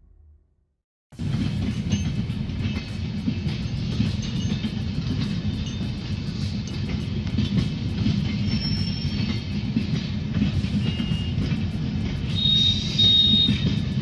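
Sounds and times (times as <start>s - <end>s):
train coaches rumbling past: 1.2s - 14.0s
high-pitched wheel squeals: 8.4s - 9.4s, 12.3s - 13.8s.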